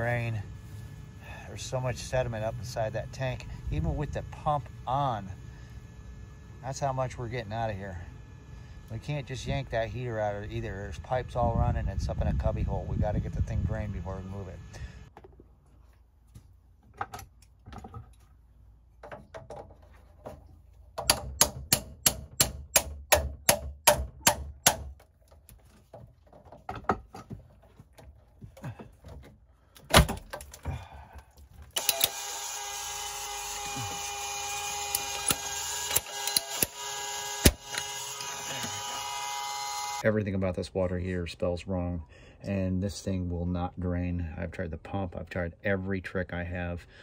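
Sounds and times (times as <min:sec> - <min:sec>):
motor hum with hiss: 0:31.8 - 0:40.0.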